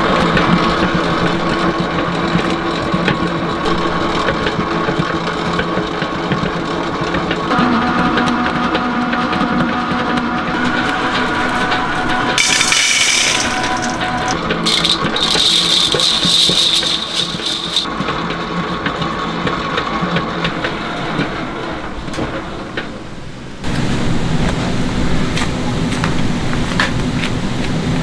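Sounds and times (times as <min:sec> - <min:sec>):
dough mixer kneading with rattling: 0:10.5 - 0:20.4.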